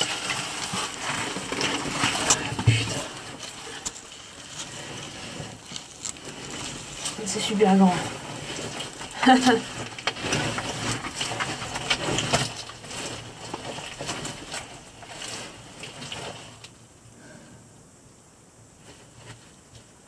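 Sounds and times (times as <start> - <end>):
scraping and sliding on mud: 0.0 - 16.8.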